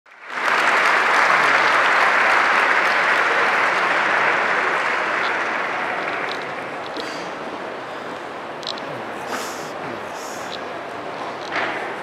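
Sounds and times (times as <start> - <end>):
large audience applauding: 0.1 - 7.5.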